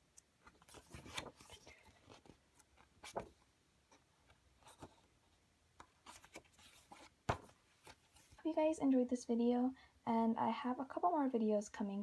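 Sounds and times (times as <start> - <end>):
paper pages rustling: 0.2 - 5.2, 5.8 - 8.4.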